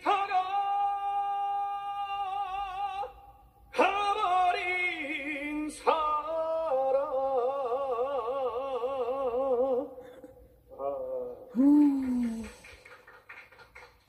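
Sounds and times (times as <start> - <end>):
man singing with vibrato: 0.0 - 10.1.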